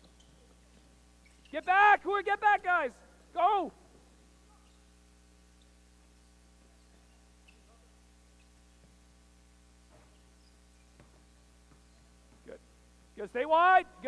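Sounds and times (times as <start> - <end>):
low electrical hum: 0.0 - 14.0
shoe squeaks on court: 1.2 - 1.6, 4.5 - 5.0, 6.8 - 8.7, 9.9 - 12.2.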